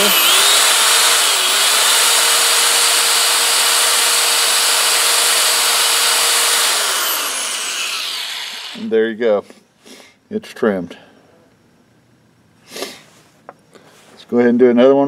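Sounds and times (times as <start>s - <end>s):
drill motor whine: 0.0s - 8.9s
hissing grind of metal cutting: 0.0s - 8.9s.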